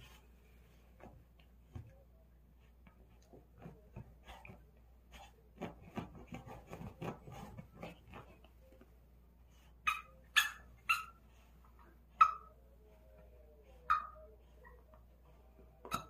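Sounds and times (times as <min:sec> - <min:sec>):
dog scratching blanket: 0:03.6 - 0:08.6
dog yipping: 0:09.8 - 0:11.2, 0:13.9 - 0:14.8.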